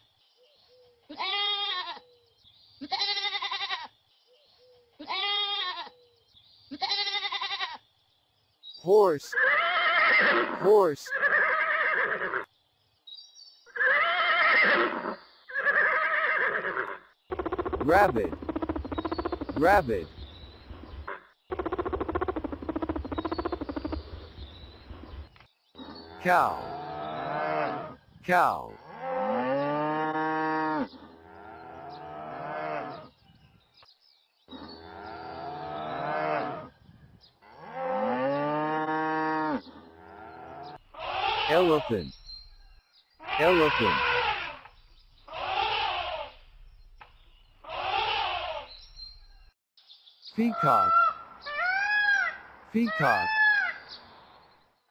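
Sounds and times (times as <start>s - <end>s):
horse whinnying: 9.3s - 12.5s, 13.8s - 17.0s, 43.3s - 44.7s, 45.3s - 46.3s, 47.7s - 48.7s.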